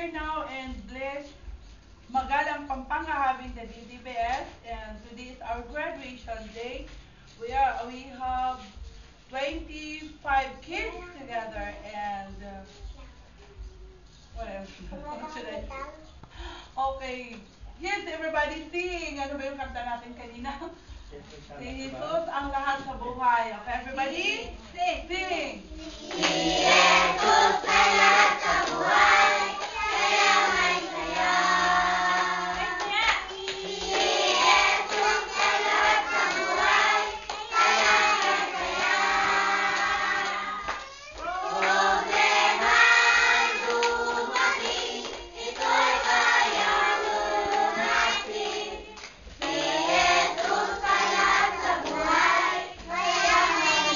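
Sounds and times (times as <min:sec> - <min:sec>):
children singing together: 0:25.8 - 0:53.9.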